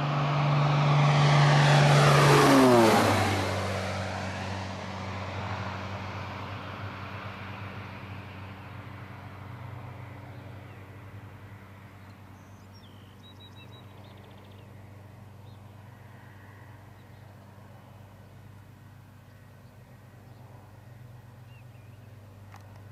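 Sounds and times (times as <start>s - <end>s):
distant propeller plane drone: 0.0s - 22.9s
bird chirping: 11.9s - 14.8s, 19.2s - 22.7s.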